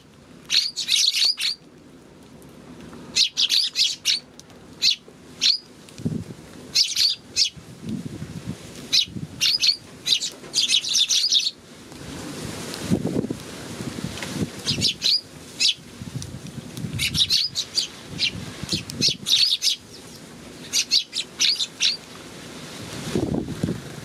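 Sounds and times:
sparrows chirping: 0.5s - 1.6s, 3.1s - 4.2s, 4.8s - 5.7s, 6.7s - 7.6s, 8.9s - 11.6s, 14.6s - 15.8s, 17.0s - 22.0s.

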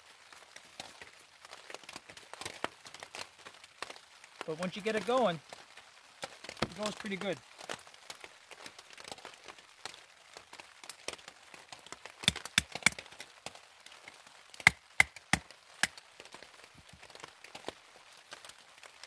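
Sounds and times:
rain pattering on plastic tarp: 0.0s - 19.0s
baton knocking knife through wood: 12.3s - 13.0s, 14.6s - 15.4s.

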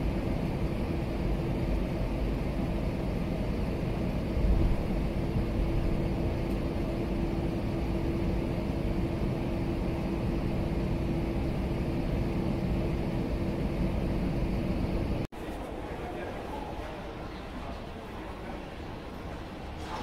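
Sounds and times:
airliner engines idling: 0.0s - 20.0s.

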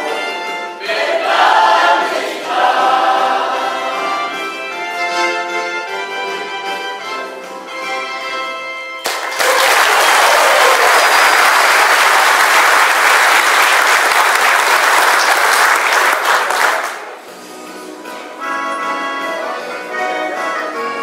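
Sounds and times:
choir singing: 0.0s - 4.7s
audience applause: 9.0s - 17.2s.

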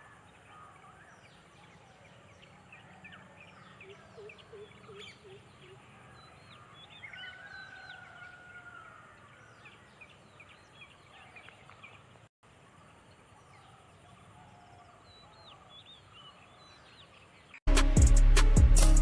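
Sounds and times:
drawn-out bird call: 0.0s - 12.1s
birds chirping and whistling: 0.5s - 8.1s.

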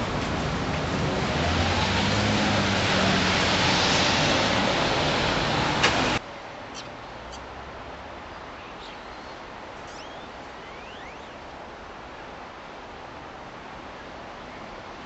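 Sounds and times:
street noise hiss: 0.0s - 15.0s
small birds chirping: 6.7s - 7.5s, 8.6s - 11.4s.

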